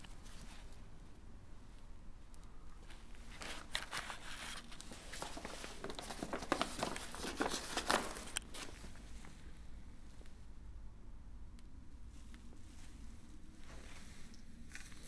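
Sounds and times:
book pages rustling and crinkling: 0:02.8 - 0:09.4, 0:12.2 - 0:15.0.

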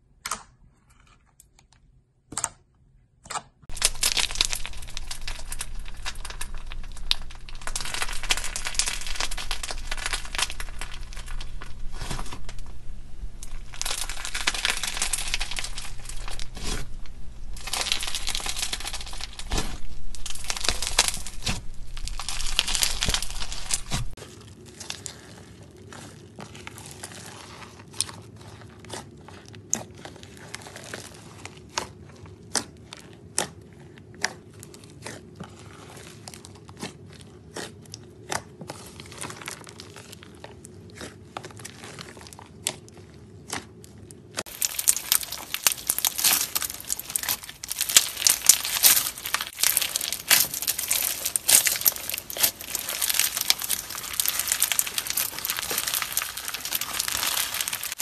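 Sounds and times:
beaded slime crackling: 0:03.7 - 0:33.5, 0:44.4 - 0:58.0
faint steady hum: 0:03.7 - 0:41.8
hands squishing slime: 0:03.7 - 0:58.0.

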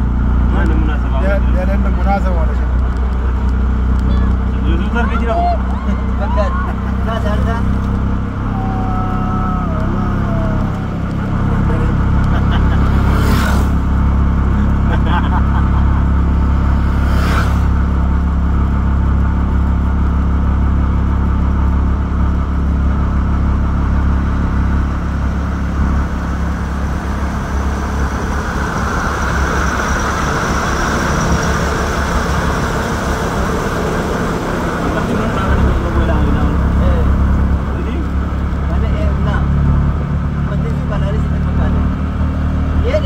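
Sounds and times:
vehicle engine and tyre rumble: 0:00.0 - 0:43.0
higher rushing noise: 0:08.0 - 0:14.9, 0:15.6 - 0:19.1, 0:24.2 - 0:38.7.

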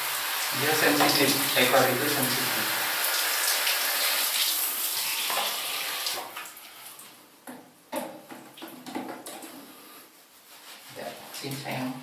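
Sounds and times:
shower spray hissing: 0:00.0 - 0:07.0.

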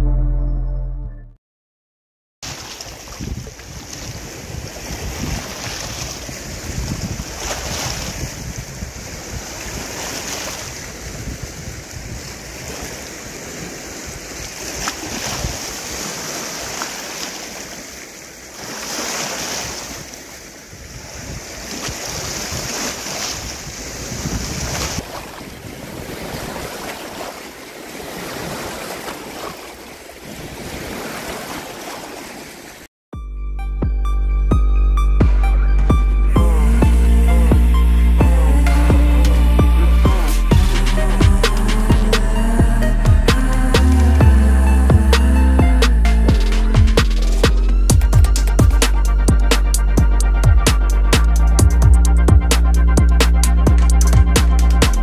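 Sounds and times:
waves washing in: 0:02.4 - 0:32.9, 0:36.3 - 0:55.0
wind buffeting microphone: 0:03.0 - 0:16.1, 0:19.6 - 0:26.9.

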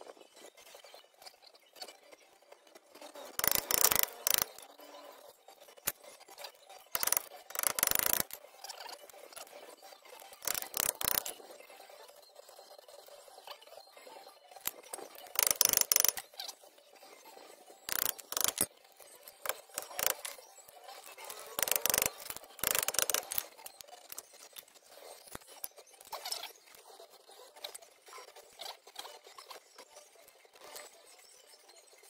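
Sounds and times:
hand tools rattling metal: 0:07.0 - 0:08.4, 0:17.9 - 0:18.7.

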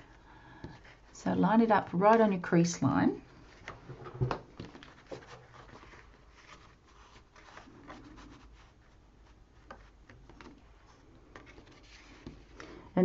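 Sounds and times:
cardboard rubbing on paper: 0:04.8 - 0:12.5.

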